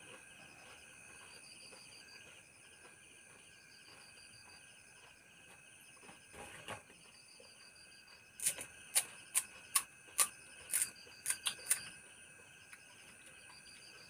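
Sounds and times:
crickets chirping: 0:07.1 - 0:14.0.

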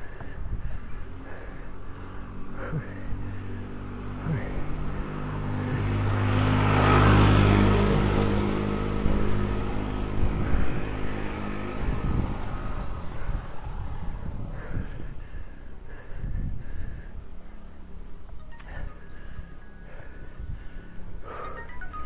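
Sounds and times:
vehicle driving past: 0:00.8 - 0:15.2.

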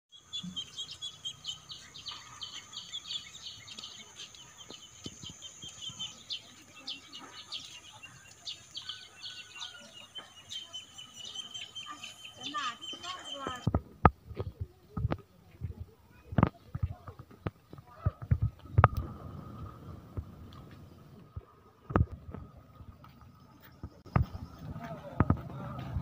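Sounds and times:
small birds chirping: 0:00.1 - 0:19.9.

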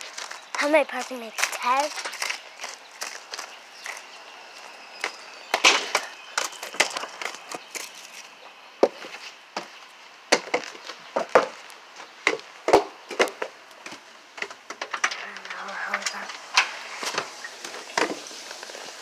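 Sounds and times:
faint hiss: 0:15.1 - 0:19.0.

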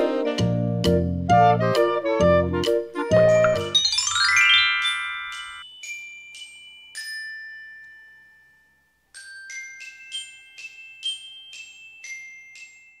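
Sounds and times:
glockenspiel jingle: 0:03.0 - 0:13.0.

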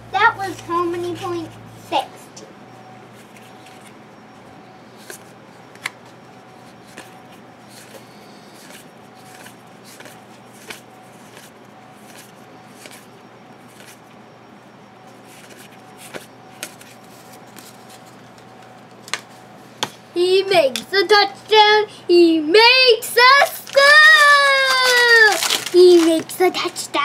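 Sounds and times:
faint steady hum: 0:00.0 - 0:27.0
rustling of cards: 0:04.9 - 0:14.2, 0:15.2 - 0:19.4, 0:23.2 - 0:26.9.

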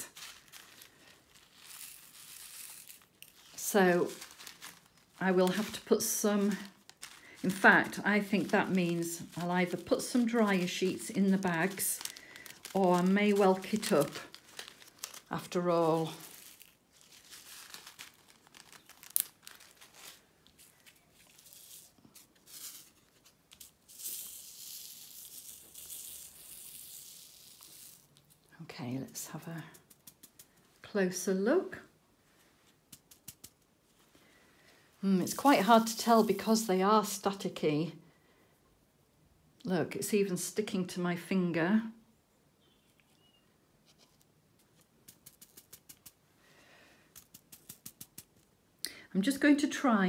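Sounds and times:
small beads rattling in tray: 0:00.0 - 0:20.2, 0:21.2 - 0:23.0, 0:23.6 - 0:28.3, 0:45.0 - 0:46.2, 0:47.1 - 0:48.4.

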